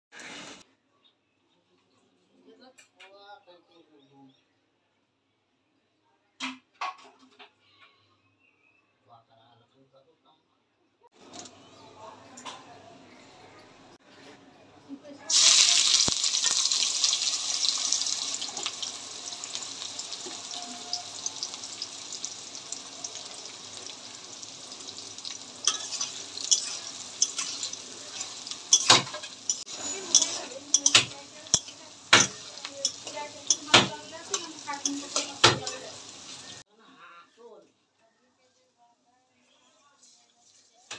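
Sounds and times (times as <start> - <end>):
onions sizzling in hot oil: 15.2 - 36.6
metal spatula scraping pan: 25.2 - 36.6.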